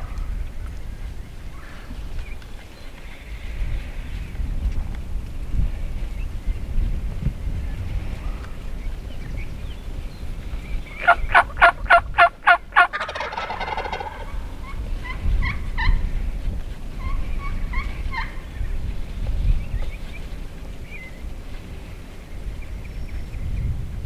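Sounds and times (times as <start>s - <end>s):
turkey gobbling: 11.0s - 16.0s, 17.0s - 18.5s.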